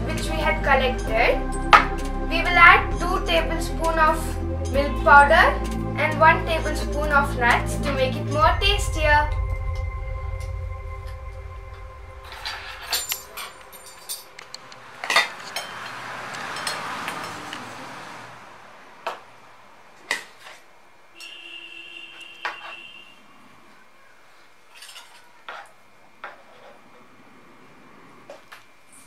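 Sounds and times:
spoon clinking on steel plates: 0:12.9 - 0:17.6.

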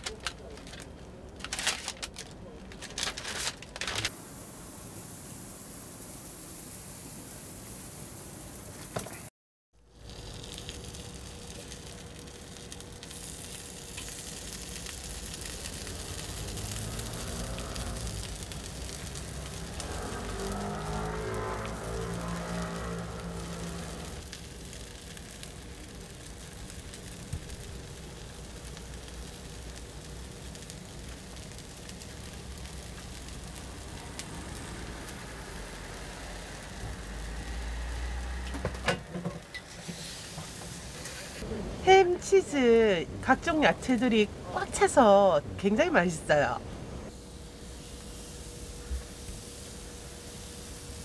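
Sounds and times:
faint crackles: 0:00.0 - 0:04.2, 0:09.9 - 0:38.6
batter sizzling in a hot iron: 0:04.0 - 0:45.2, 0:47.1 - 0:51.0.

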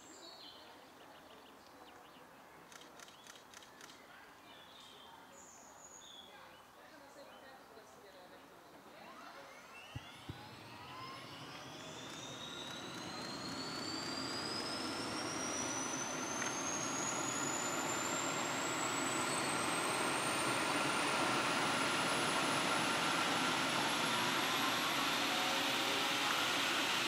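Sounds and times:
short clicks: 0:02.7 - 0:04.0
helicopter engine whine rising: 0:08.9 - 0:27.0.

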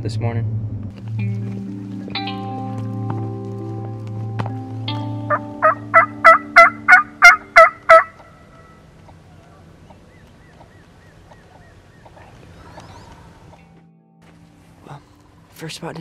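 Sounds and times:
background music: 0:00.1 - 0:08.1, 0:13.6 - 0:16.0
turkey call yelps: 0:05.3 - 0:09.6.

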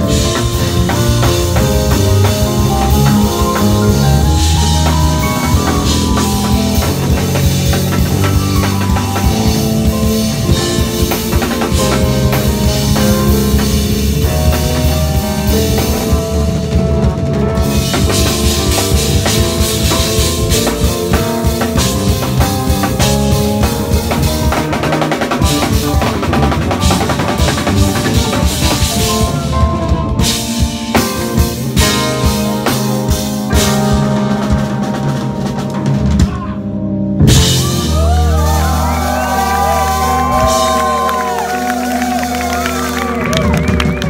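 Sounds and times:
drum kit with cymbals: 0:00.0 - 0:44.0
live band playing: 0:00.0 - 0:44.0.

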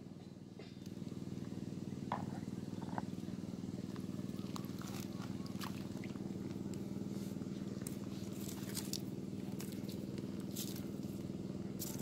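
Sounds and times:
motor droning: 0:00.0 - 0:12.0
water splashes: 0:04.6 - 0:06.5, 0:08.2 - 0:11.0.

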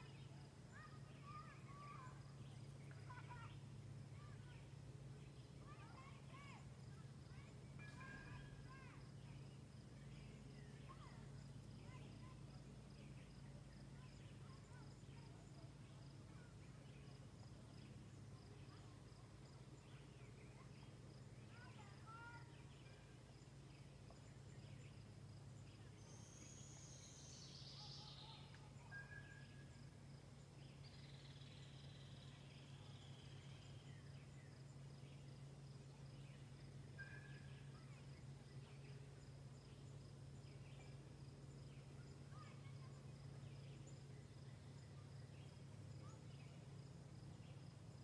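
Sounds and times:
low steady hum: 0:00.0 - 0:48.0
bird chirps: 0:07.4 - 0:12.3, 0:25.6 - 0:29.8, 0:36.1 - 0:39.1.

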